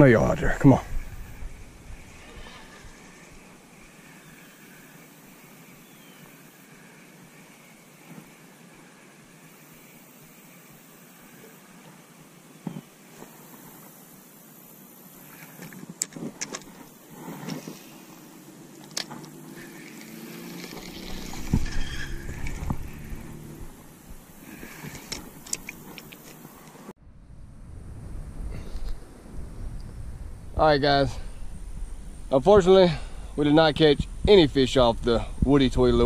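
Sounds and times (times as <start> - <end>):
wind rumble on microphone: 0.0 - 3.5, 20.6 - 26.2, 27.0 - 36.0
faint background hiss: 0.0 - 36.0
fishing reel whirring: 16.4 - 26.7.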